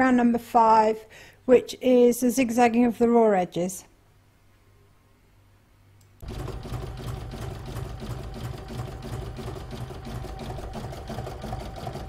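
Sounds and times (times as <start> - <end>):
embroidery machine needle beating: 6.2 - 12.0
motor hum: 6.2 - 12.0.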